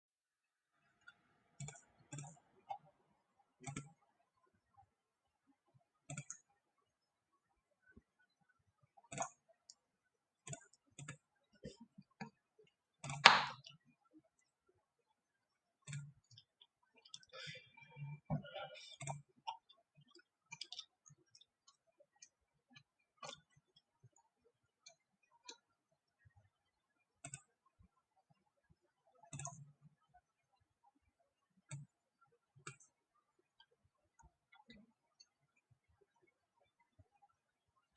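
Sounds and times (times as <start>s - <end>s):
computer mouse clicks: 1.0s - 2.8s, 3.6s - 4.1s, 6.1s - 6.5s, 9.1s - 9.8s, 10.4s - 12.4s, 27.2s - 27.5s, 29.3s - 29.6s, 32.6s - 32.9s
mouse button clicking: 13.2s - 13.6s.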